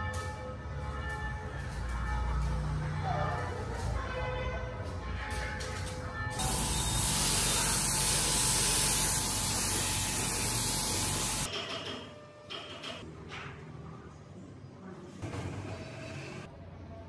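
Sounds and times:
spray gun hissing: 0:06.4 - 0:11.5.

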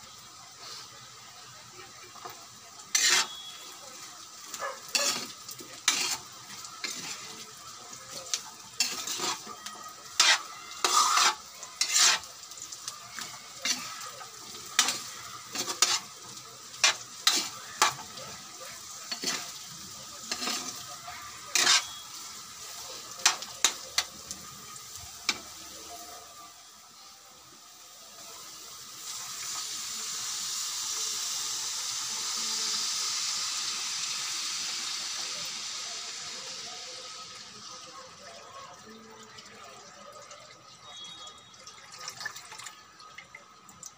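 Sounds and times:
water hissing in hot wok: 0:00.0 - 0:39.1
food sizzling: 0:00.0 - 0:43.9
metal spatula scraping wok: 0:02.9 - 0:03.8, 0:04.8 - 0:07.5, 0:08.1 - 0:12.6, 0:13.2 - 0:24.3.

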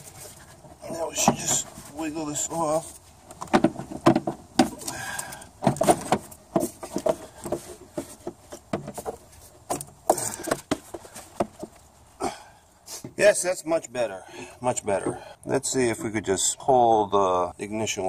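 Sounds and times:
plastic and rubber rattling: 0:03.3 - 0:11.8.

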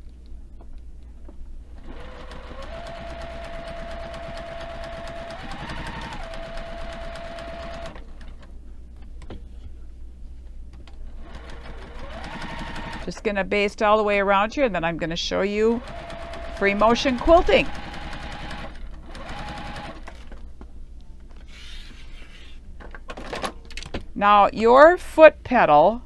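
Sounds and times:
sewing machine motor whine: 0:01.8 - 0:08.5, 0:11.2 - 0:13.2, 0:15.6 - 0:20.4.

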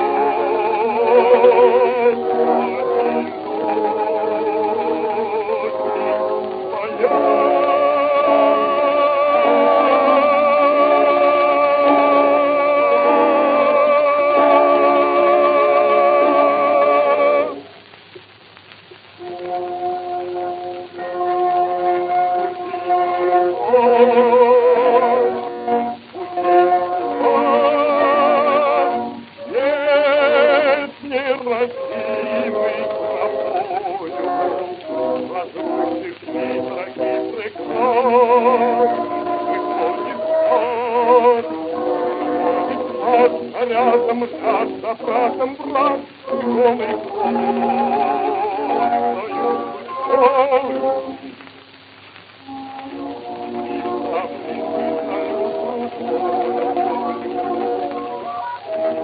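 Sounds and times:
old gramophone record music: 0:00.0 - 0:59.0.

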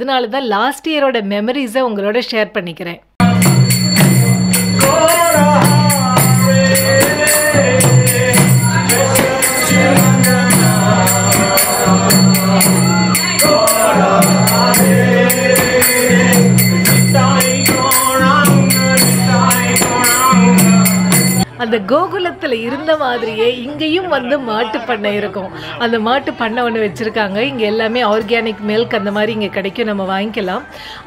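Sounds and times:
group singing a chant: 0:03.2 - 0:21.5
hand cymbals: 0:03.2 - 0:21.5
hand drum beat: 0:03.2 - 0:21.5.

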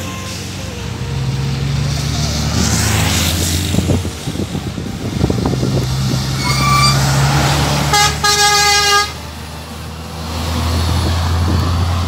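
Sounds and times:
truck horn: 0:00.0 - 0:01.2, 0:06.4 - 0:09.3
diesel truck engines droning: 0:00.0 - 0:12.0.

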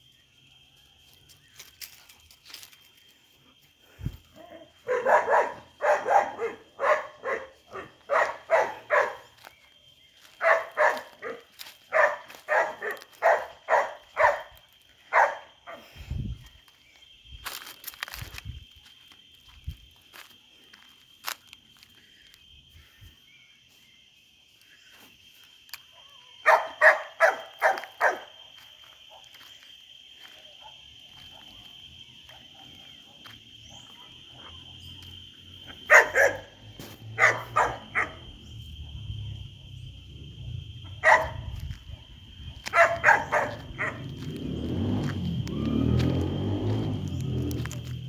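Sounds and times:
dog barking: 0:04.4 - 0:09.4, 0:10.4 - 0:15.8, 0:25.9 - 0:28.3, 0:35.9 - 0:36.6, 0:37.2 - 0:38.2, 0:41.0 - 0:41.5, 0:42.7 - 0:44.1.

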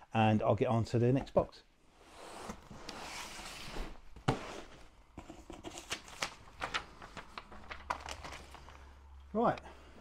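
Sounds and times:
cardboard boxes rustling and scraping: 0:02.0 - 0:05.7
paper and cardboard crinkling: 0:03.3 - 0:09.0.

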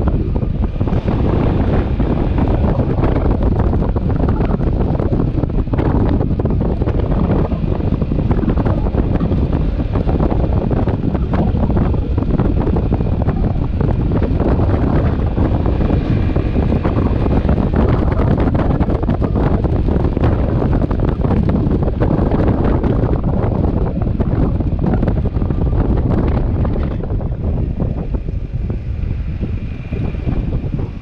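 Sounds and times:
motorcycle engine running: 0:00.0 - 0:31.0
road noise: 0:00.0 - 0:31.0
wind rush on microphone: 0:00.0 - 0:31.0.

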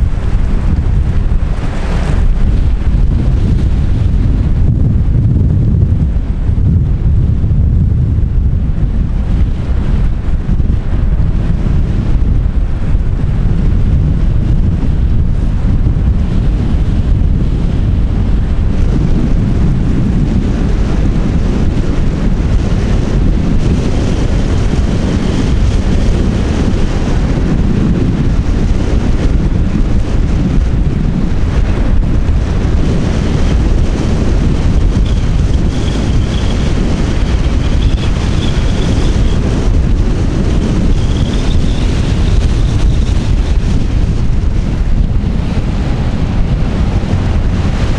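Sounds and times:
wind buffeting microphone: 0:00.0 - 0:47.9.

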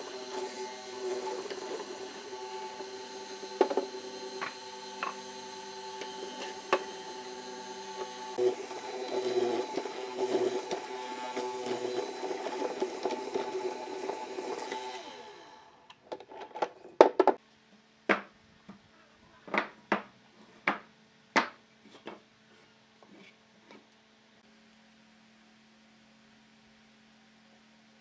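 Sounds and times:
mortising machine cutting wood: 0:00.0 - 0:15.8
wooden blocks knocking on workbench: 0:03.6 - 0:05.2, 0:20.7 - 0:22.2.

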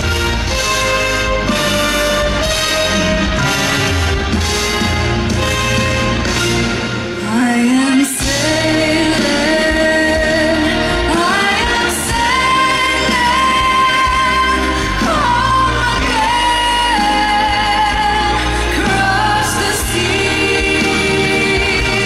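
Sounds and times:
band accompaniment: 0:00.0 - 0:22.0
woman singing a pop ballad: 0:07.2 - 0:22.0.

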